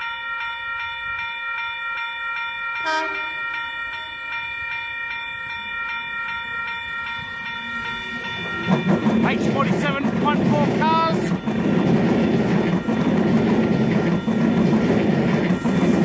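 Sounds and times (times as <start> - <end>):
electric train whine: 0.0 - 16.0.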